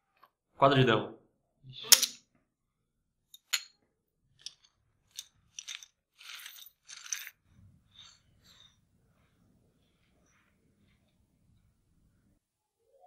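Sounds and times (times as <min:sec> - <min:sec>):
poker chips clicking and rattling: 0:04.4 - 0:07.4.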